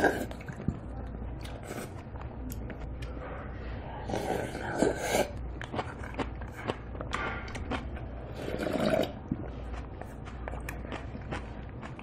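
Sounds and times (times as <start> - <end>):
slurping: 0.0 - 0.7, 4.0 - 12.0
chewing: 4.0 - 12.0.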